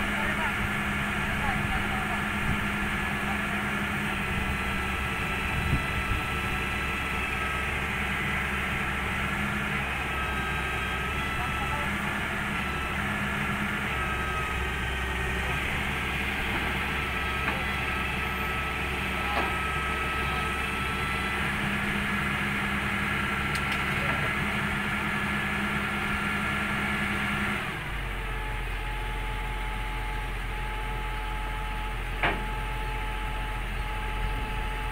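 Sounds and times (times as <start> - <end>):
diesel engine running under load: 0.0 - 34.9
hydraulic whine: 0.0 - 34.9.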